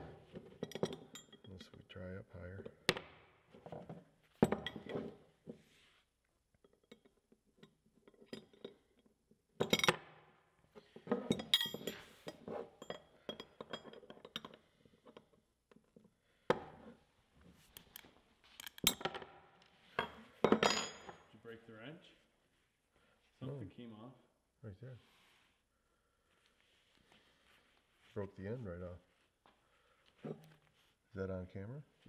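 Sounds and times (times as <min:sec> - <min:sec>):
wrenches clinking against padlock: 0:00.4 - 0:02.0, 0:06.6 - 0:10.0, 0:11.2 - 0:15.3, 0:17.8 - 0:19.3.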